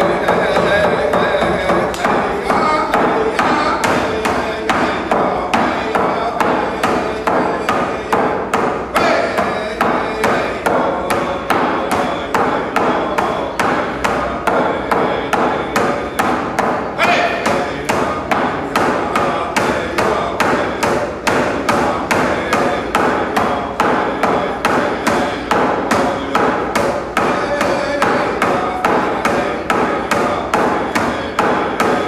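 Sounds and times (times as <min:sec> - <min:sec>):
hand drum beat: 0:00.0 - 0:12.1
man singing a chant: 0:00.0 - 0:32.0.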